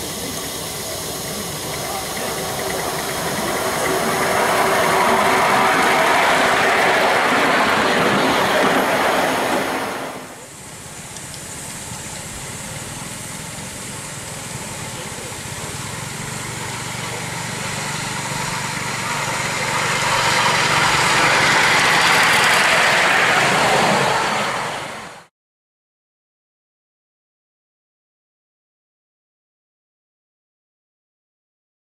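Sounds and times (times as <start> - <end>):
miniature train running on track: 0.0 - 25.3.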